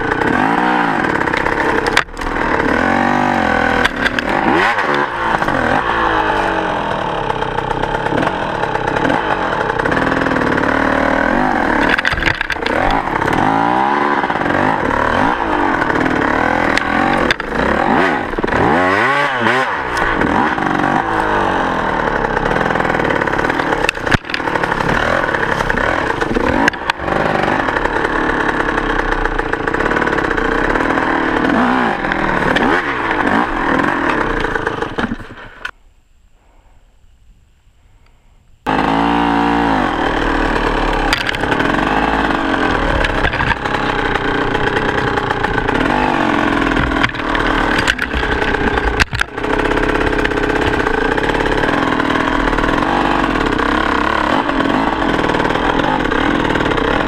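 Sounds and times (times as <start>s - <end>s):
dirt bike engine revving: 0.0s - 35.7s, 38.6s - 57.0s
sharp knocks over rough ground: 3.7s - 6.5s, 11.2s - 21.4s, 22.6s - 27.8s, 40.9s - 52.0s.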